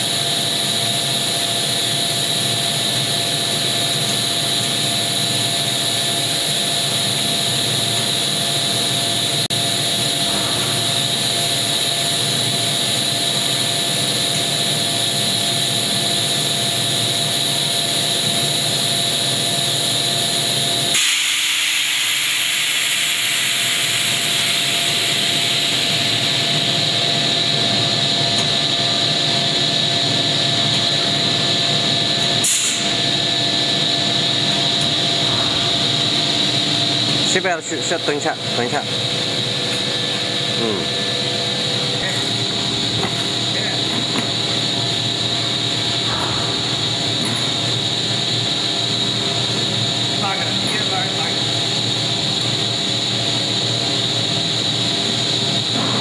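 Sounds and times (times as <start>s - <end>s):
machine drone with steady tones: 0.0s - 56.0s
hiss: 0.1s - 26.5s, 32.4s - 33.0s.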